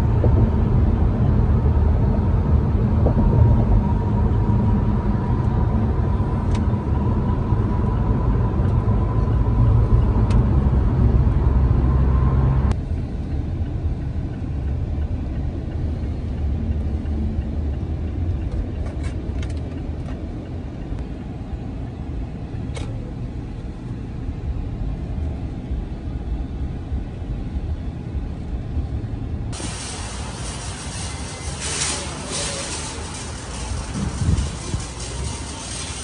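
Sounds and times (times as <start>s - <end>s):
car engine rumble and road noise: 0.0s - 36.0s
steady hiss: 29.6s - 36.0s.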